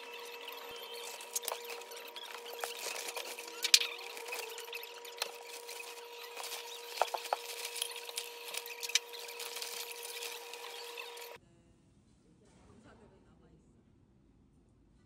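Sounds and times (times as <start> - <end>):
fabric bag rustling: 0.8 - 11.4.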